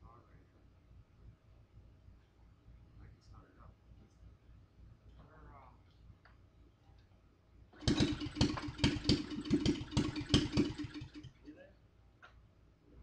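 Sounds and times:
go-kart engine running roughly: 7.8 - 11.5.

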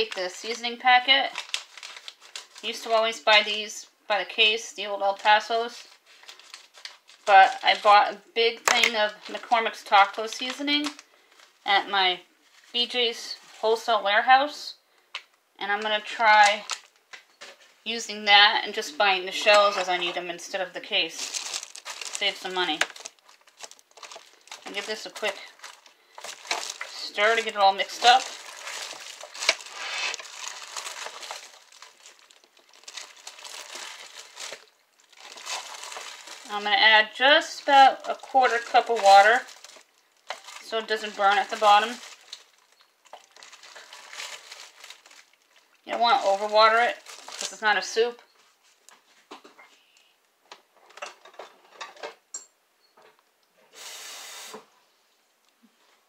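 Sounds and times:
plastic liner crinkling: 0.0 - 3.7, 4.9 - 11.6, 15.2 - 18.0, 18.7 - 49.4
steady hiss: 53.7 - 54.7.

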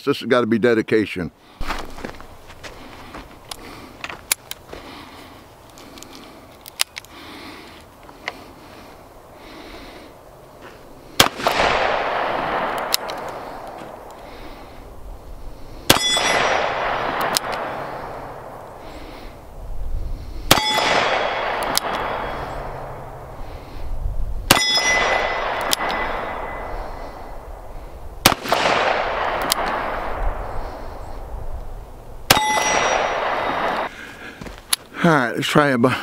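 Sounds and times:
steel target ringing: 15.9 - 17.3, 24.5 - 27.4, 32.3 - 33.8.

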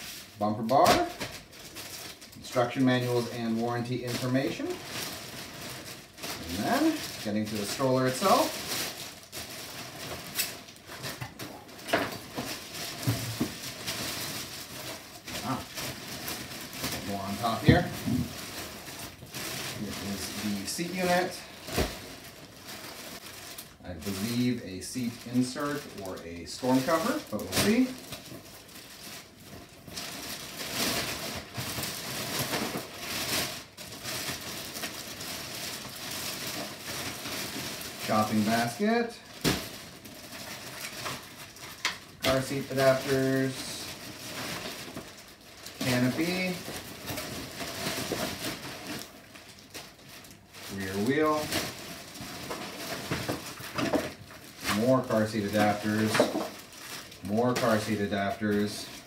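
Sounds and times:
plastic bag rustling: 0.0 - 59.0
plastic packaging crinkling: 0.0 - 59.0.

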